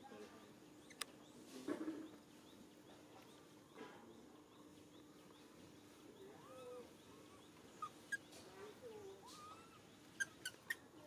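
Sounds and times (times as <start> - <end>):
rustle or squeak: 9.2 - 10.8.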